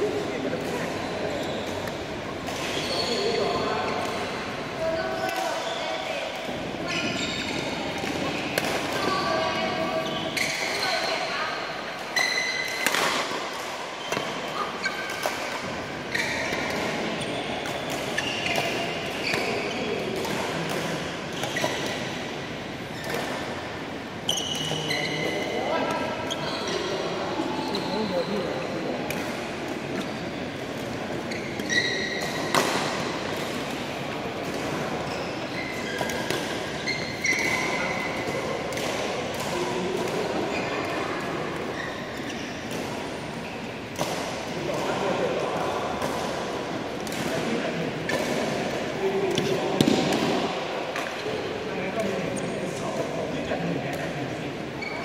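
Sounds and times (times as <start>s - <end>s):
shoes squeaking on court: 0.6s - 4.3s, 6.8s - 11.3s, 14.0s - 20.7s, 24.2s - 29.2s, 29.9s - 33.5s, 34.4s - 38.5s, 39.5s - 43.8s, 54.8s - 55.0s
rackets hitting shuttlecock: 7.5s - 9.1s, 12.0s - 23.7s, 29.0s - 43.1s, 45.9s - 51.3s.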